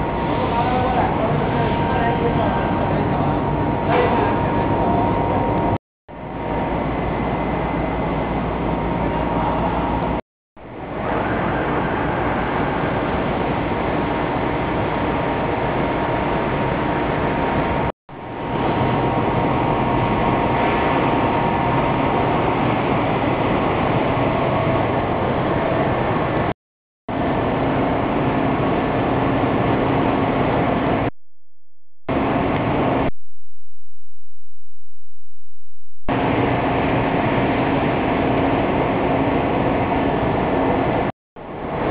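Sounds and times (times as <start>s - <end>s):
textile machinery running: 0.0s - 26.5s
low hum: 32.0s - 38.4s
faint steady whine: 32.1s - 41.9s.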